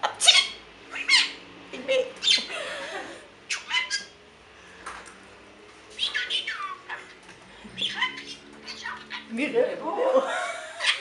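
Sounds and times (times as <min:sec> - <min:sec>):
budgerigar chattering and squawking: 0:00.2 - 0:01.4, 0:03.5 - 0:04.2, 0:06.0 - 0:09.4, 0:10.8 - 0:11.0.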